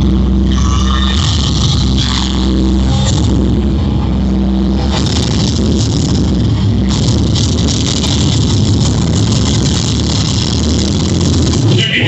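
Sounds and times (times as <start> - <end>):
loud music with heavy bass: 0.0 - 12.0.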